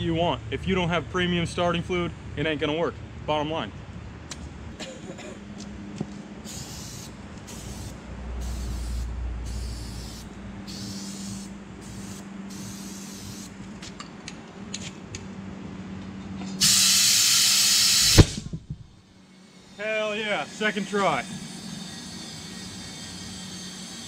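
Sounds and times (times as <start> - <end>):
compressed air blasting: 6.4 - 13.6, 16.6 - 24.0
aerosol spray hissing bursts: 6.5 - 13.6, 16.6 - 18.4.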